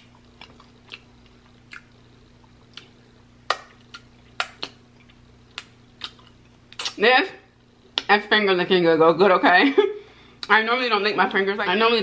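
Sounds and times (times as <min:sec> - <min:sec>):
wet mouth smacks and clicks: 0:03.5 - 0:07.0.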